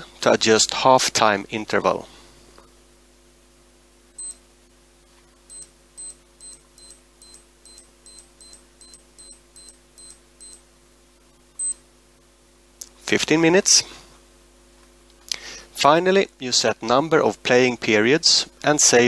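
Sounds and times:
short electronic beeps: 4.2s - 4.4s, 5.5s - 10.6s, 11.6s - 11.8s.

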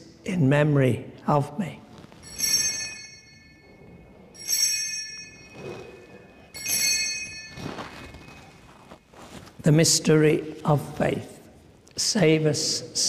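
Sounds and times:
altar bell ringing: 2.1s - 9.0s.

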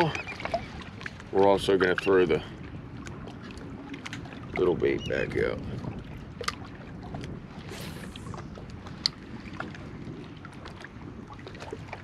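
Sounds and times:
light wind: 0.0s - 12.0s
water lapping around kayak: 0.0s - 12.0s.

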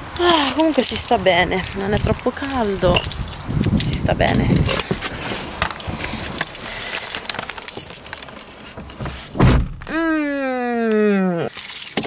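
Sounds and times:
keys jingling: 0.0s - 9.4s, 11.5s - 12.0s
clattering and rustling: 0.0s - 9.8s
heavy thump: 8.8s - 9.9s.

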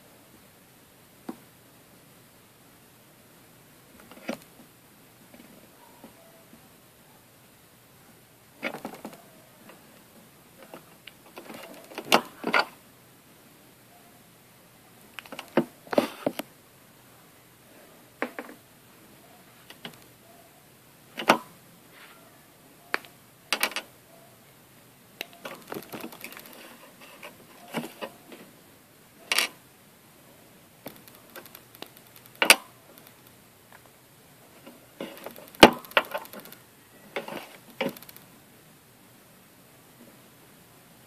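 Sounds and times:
small clicks and taps: 30.8s - 33.9s.

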